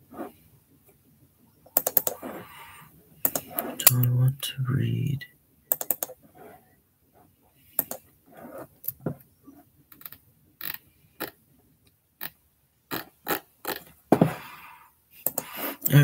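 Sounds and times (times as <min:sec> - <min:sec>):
computer keyboard clicks: 0:01.8 - 0:02.2, 0:03.3 - 0:04.0, 0:05.7 - 0:06.2, 0:07.8 - 0:08.0.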